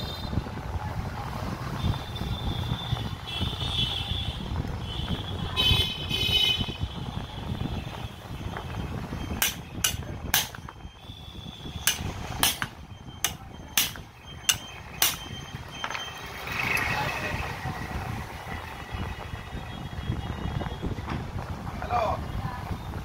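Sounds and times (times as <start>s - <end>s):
hammer striking metal: 9.4s - 10.7s, 11.8s - 15.3s.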